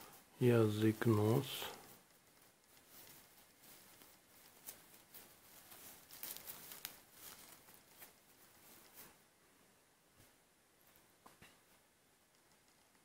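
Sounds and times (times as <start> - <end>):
fabric puppet rustling and scratching: 0.0 - 9.3.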